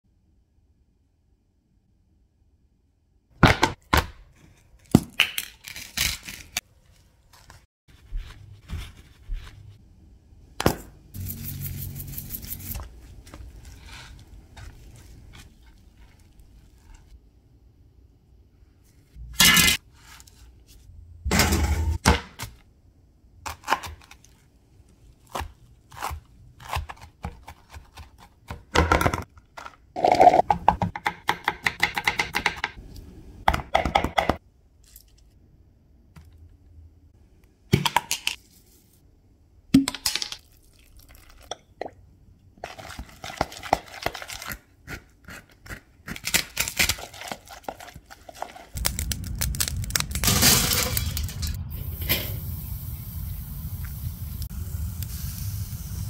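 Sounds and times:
spoon stirring in plastic tub: 0:12.8 - 0:17.1, 0:47.0 - 0:48.8.

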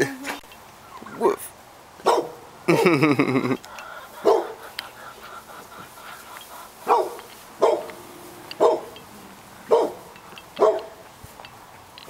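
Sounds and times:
dog barking: 0:02.0 - 0:02.4, 0:04.2 - 0:04.7, 0:06.8 - 0:09.0, 0:09.6 - 0:11.0.

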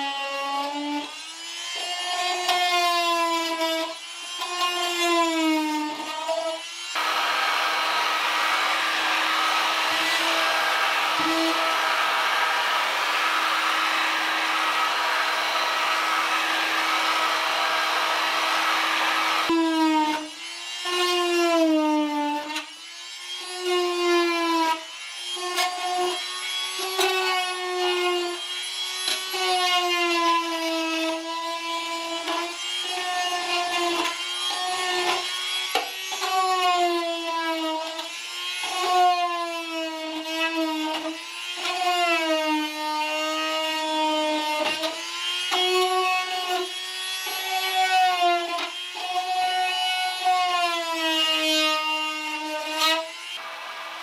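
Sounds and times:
oscillating tool scraping metal: 0:00.4 - 0:22.7
heat gun hissing and humming: 0:05.4 - 0:20.7.

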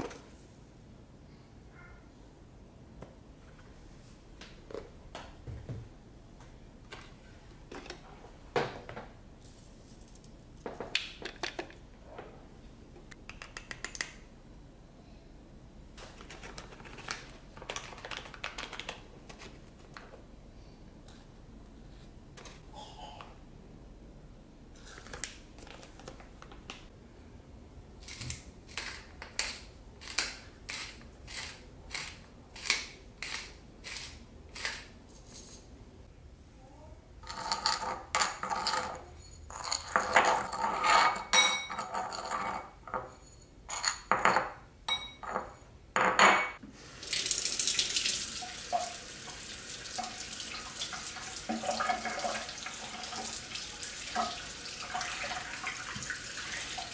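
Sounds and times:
spoon clinking against ceramic bowl: 0:44.9 - 0:45.5
tap water running: 0:46.8 - 0:56.9.

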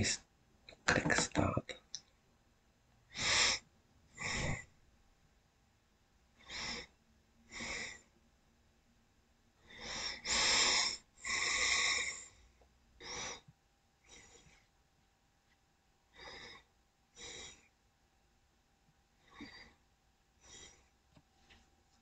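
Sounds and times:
person breathing: 0:03.1 - 0:04.7, 0:09.6 - 0:14.7, 0:16.1 - 0:17.8, 0:20.4 - 0:21.0.

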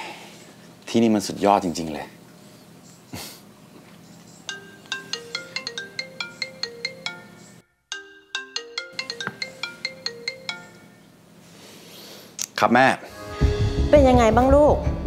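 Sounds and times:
marimba-like phone ringtone: 0:04.4 - 0:11.2.

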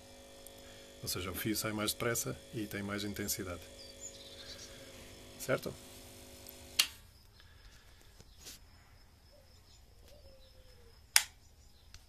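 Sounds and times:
faint bird or insect calls: 0:03.1 - 0:05.6, 0:06.9 - 0:12.0.

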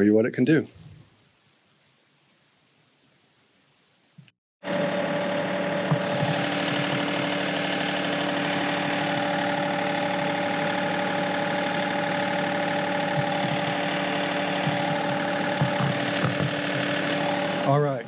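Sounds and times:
tractor diesel engine running: 0:04.6 - 0:18.0.

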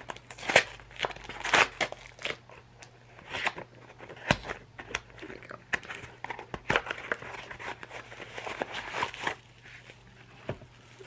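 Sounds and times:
plastic packet crinkling: 0:10.7 - 0:11.0.

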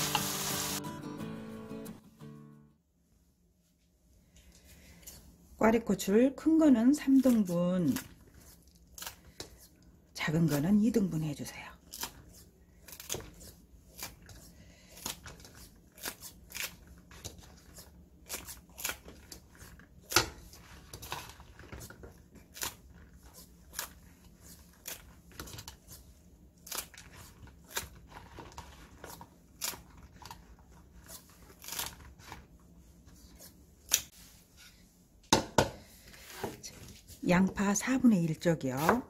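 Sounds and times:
scissors snipping peppers: 0:11.8 - 0:21.2, 0:33.8 - 0:34.1, 0:38.8 - 0:39.0.

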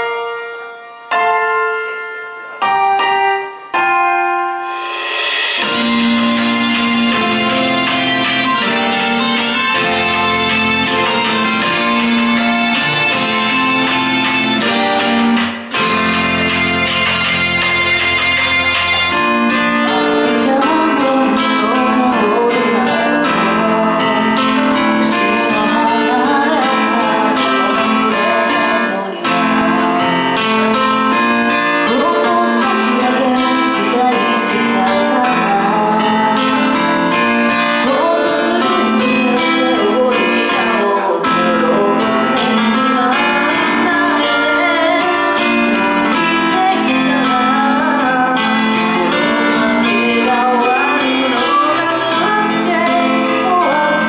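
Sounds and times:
guitar accompaniment: 0:00.0 - 0:54.0
woman singing pop ballad: 0:19.5 - 0:54.0.

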